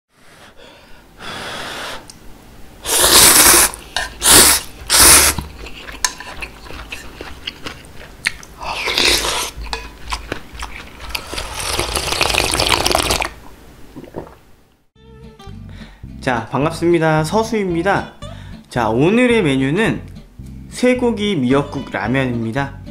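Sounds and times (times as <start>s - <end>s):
noodles slurping: 2.8s - 13.4s
broth sipping slurp: 10.9s - 13.3s.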